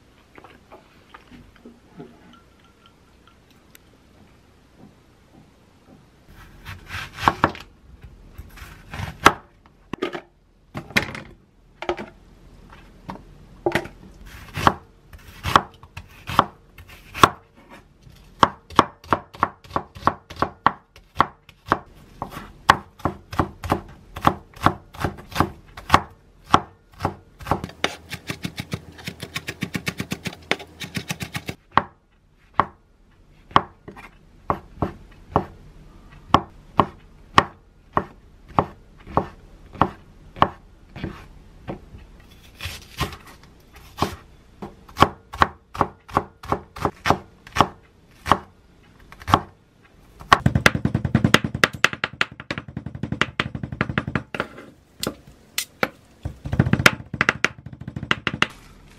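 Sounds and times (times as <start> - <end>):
knife chopping on wooden board: 15.4 - 17.4, 45.0 - 48.5.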